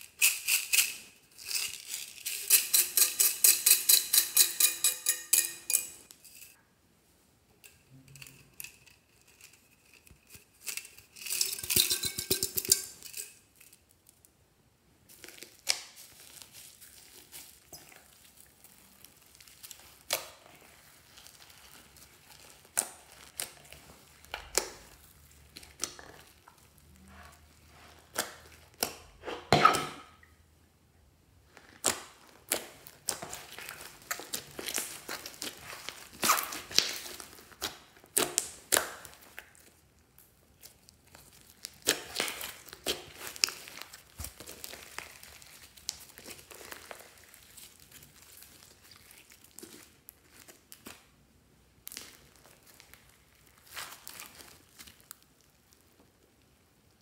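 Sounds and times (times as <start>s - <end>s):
toppings rattling in bottle: 0.0s - 6.6s, 7.7s - 13.8s.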